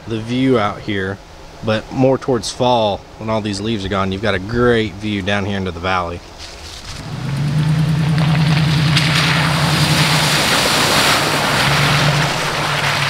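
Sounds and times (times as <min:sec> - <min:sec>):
vehicle engine hum: 0:06.4 - 0:13.0
loud rushing noise: 0:06.8 - 0:13.0.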